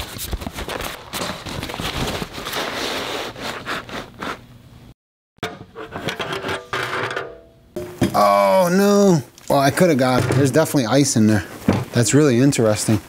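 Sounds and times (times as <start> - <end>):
packing paper rustling and crinkling: 0.0 - 4.3
metal scraping of can cap: 5.4 - 8.2.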